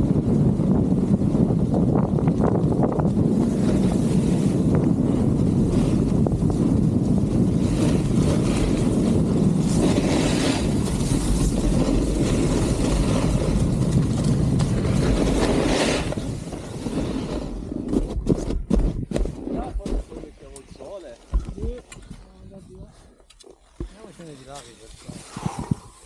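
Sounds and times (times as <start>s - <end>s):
snowboard rumbling on snow: 0.0s - 21.8s, 23.7s - 26.0s
wind on microphone: 0.0s - 23.9s, 24.9s - 26.0s
board edge scraping snow: 2.3s - 21.8s, 23.6s - 26.0s.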